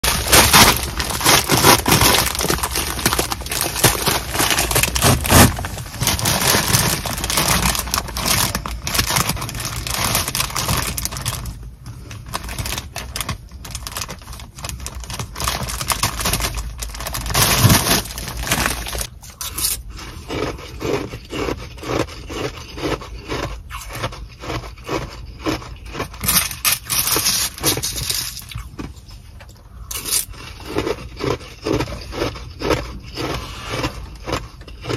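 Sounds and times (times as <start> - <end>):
plastic bag crinkling: 0.0 - 19.1, 26.2 - 28.6
plastic spoon crunching into ice: 0.0 - 28.9, 29.9 - 34.9.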